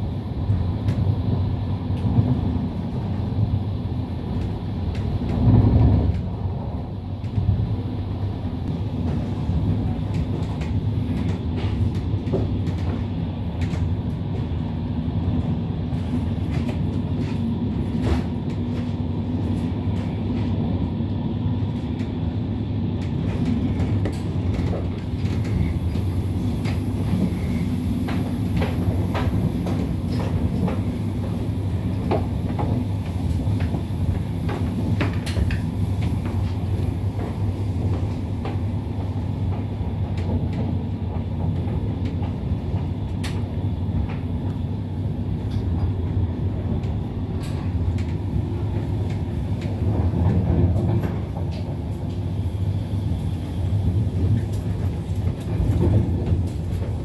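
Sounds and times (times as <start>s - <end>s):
train wheels rumbling on rails: 0.0s - 57.0s
train bump: 23.1s - 44.6s.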